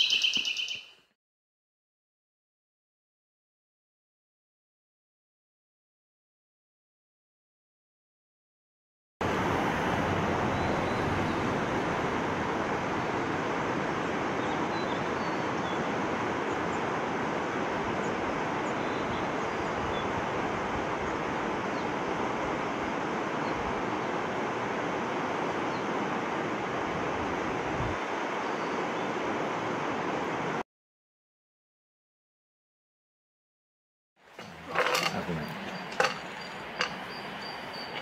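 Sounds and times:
faint high chirps: 0.0 - 1.0
steady rushing outdoor noise: 9.2 - 30.6, 34.2 - 38.0.

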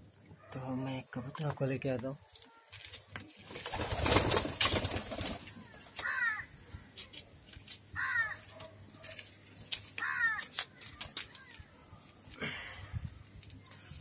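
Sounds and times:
crow cawing: 5.7 - 6.6, 8.0 - 8.4, 10.0 - 10.6.

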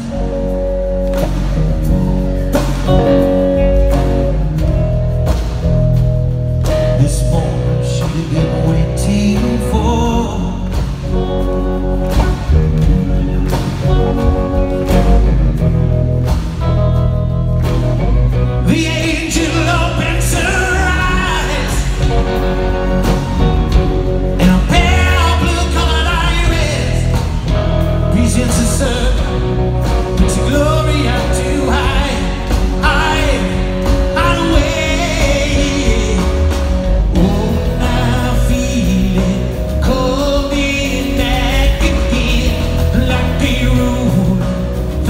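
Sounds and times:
person singing lead vocal: 0.0 - 1.5, 6.7 - 11.4, 18.5 - 45.0
live rock band: 0.0 - 45.0.

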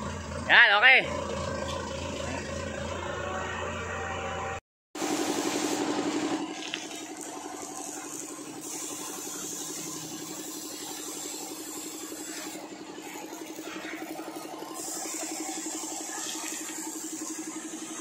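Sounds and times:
air compressor humming: 0.0 - 18.0
spray gun hissing: 5.0 - 6.0, 7.3 - 18.0.

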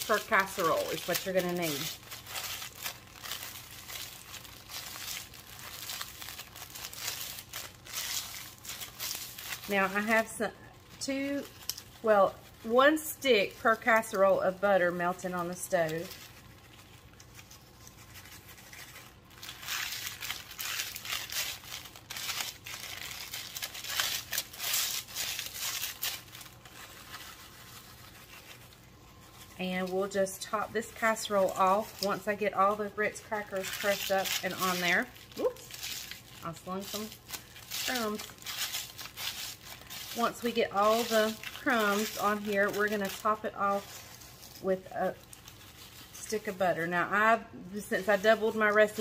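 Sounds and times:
crackers crunching: 0.0 - 9.8, 15.2 - 29.7, 33.2 - 46.2
wrapper crinkling: 0.0 - 49.0.

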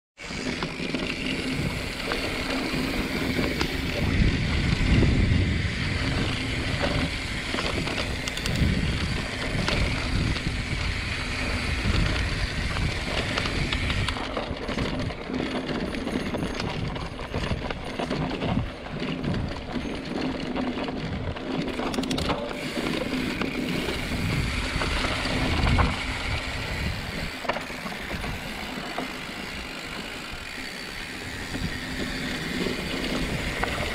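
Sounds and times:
bike clicks and rattles: 0.2 - 33.9
bike tyres on dirt trail: 0.2 - 33.9.

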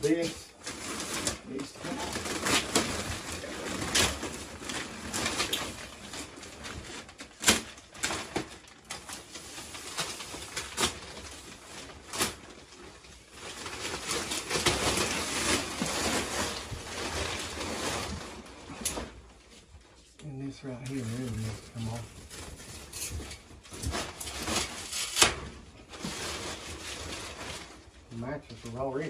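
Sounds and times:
plastic sheeting crinkling: 0.0 - 29.0
sharp plastic cracks: 7.2 - 9.2.

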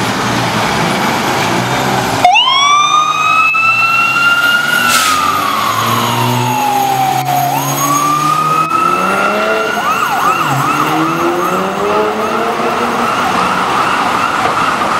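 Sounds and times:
fire engine siren wailing and yelping: 2.1 - 14.9.

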